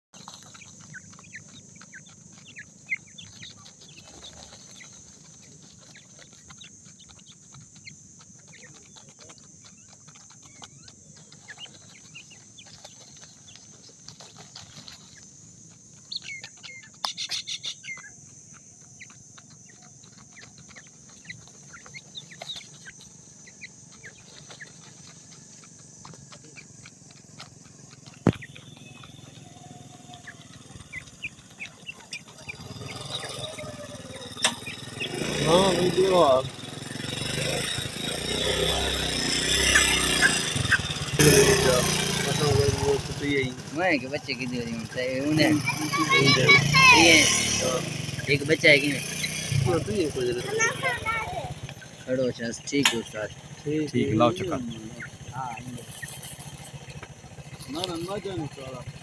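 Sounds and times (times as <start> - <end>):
chicks peeping: 0.1 - 59.0.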